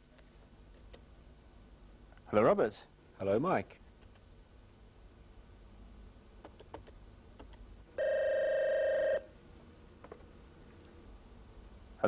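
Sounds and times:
telephone ringer trill: 8.0 - 9.3.

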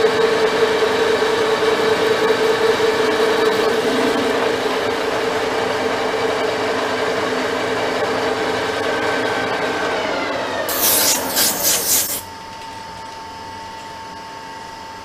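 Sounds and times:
lathe cutting steel: 10.7 - 12.2.

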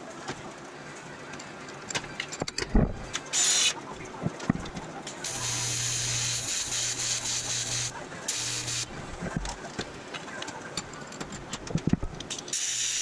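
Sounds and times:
welding arc buzzing hiss: 3.3 - 3.8, 5.2 - 9.0, 12.5 - 13.0.

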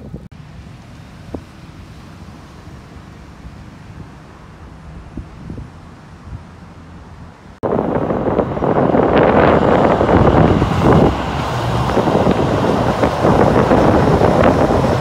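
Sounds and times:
train rumbling across bridge: 0.0 - 15.0
wind on microphone: 3.2 - 15.0.

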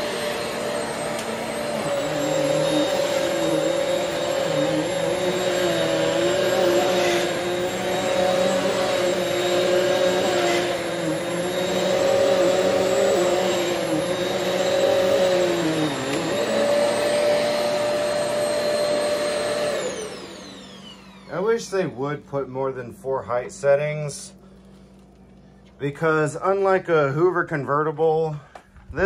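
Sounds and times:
vacuum cleaner motor whine: 0.0 - 22.2.

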